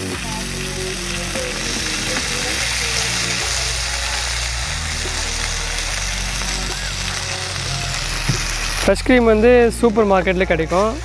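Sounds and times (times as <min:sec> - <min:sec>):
cheese cubes sizzling in a pan: 0:00.0 - 0:11.0.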